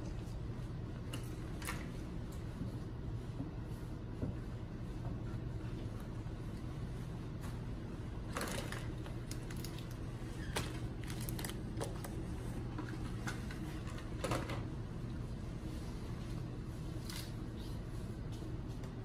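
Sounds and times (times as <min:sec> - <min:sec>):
low room hum: 0:00.0 - 0:19.0
wrappers crinkling and clicking: 0:08.3 - 0:12.2.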